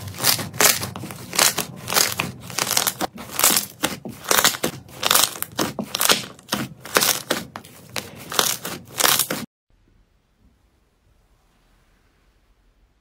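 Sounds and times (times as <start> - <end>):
slime crust crunching: 0.0 - 9.5.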